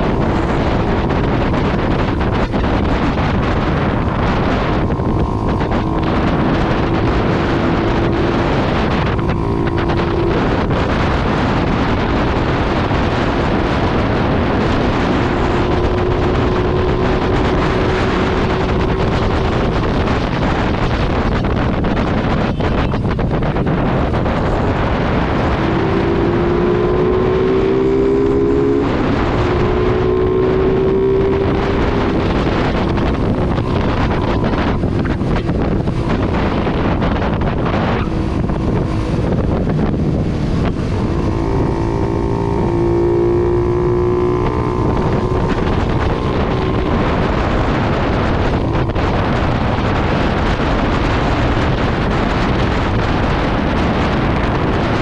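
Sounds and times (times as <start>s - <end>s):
droning engine note rising: 0.0s - 20.9s, 23.5s - 51.1s
motorcycle engine running: 0.0s - 55.0s
wind rushing over microphone: 0.0s - 55.0s.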